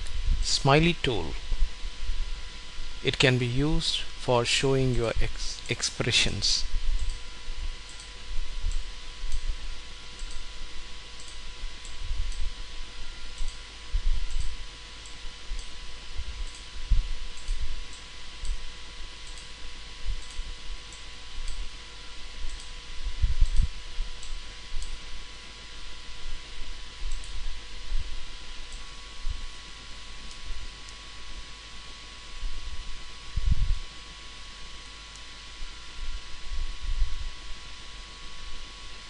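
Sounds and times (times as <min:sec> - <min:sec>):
faint electrical hum: 0:00.0 - 0:39.0
computer mouse clicks: 0:07.0 - 0:07.2, 0:07.9 - 0:09.5, 0:10.2 - 0:10.4, 0:11.2 - 0:12.4, 0:14.3 - 0:15.7, 0:17.4 - 0:18.6, 0:20.2 - 0:21.6, 0:22.5 - 0:22.7, 0:27.1 - 0:27.4.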